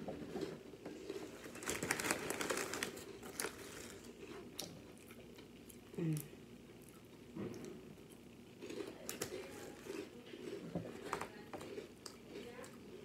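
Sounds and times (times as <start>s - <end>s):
plastic snack bag crinkling: 1.1s - 4.2s.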